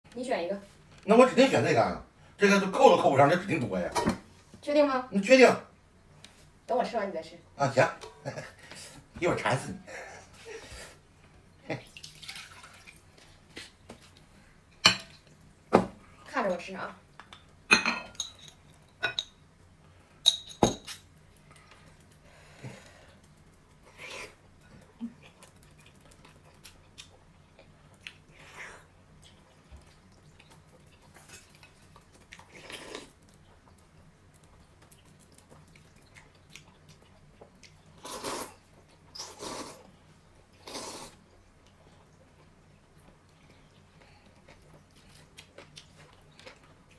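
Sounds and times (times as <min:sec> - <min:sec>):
glass jar set down: 0:20.3 - 0:20.9
soft chewing: 0:21.1 - 0:46.9
person slurping noodles: 0:38.0 - 0:38.6, 0:39.2 - 0:39.9, 0:40.6 - 0:41.2.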